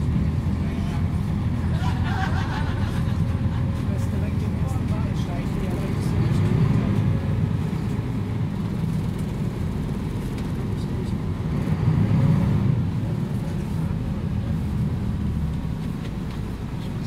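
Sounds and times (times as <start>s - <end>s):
bus diesel engine rumbling: 0.0s - 17.0s.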